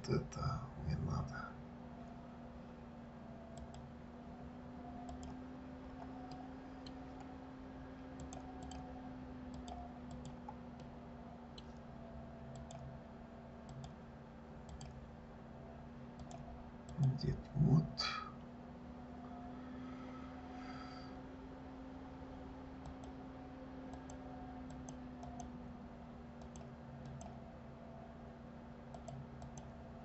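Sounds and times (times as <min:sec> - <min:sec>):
steady low hum: 0:00.0 - 0:30.0
mouse buttons clicking: 0:05.0 - 0:05.4, 0:08.2 - 0:08.9, 0:09.5 - 0:10.9, 0:12.5 - 0:12.9, 0:14.7 - 0:15.0.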